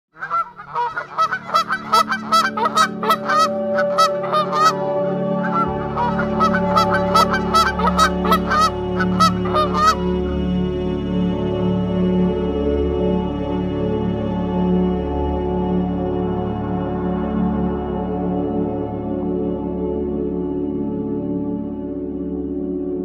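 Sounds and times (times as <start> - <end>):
geese honking: 0.1 - 10.3
sustained background music tones: 0.2 - 23.0.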